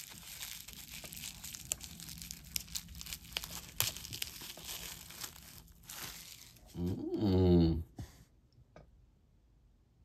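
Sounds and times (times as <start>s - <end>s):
wrapping crinkling and rustling: 0.0s - 7.0s.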